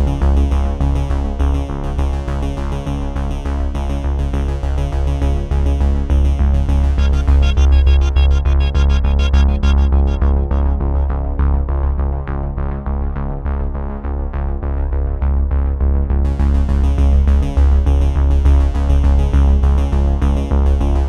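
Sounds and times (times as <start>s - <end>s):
electronic synthesizer music: 6.7s - 11.8s.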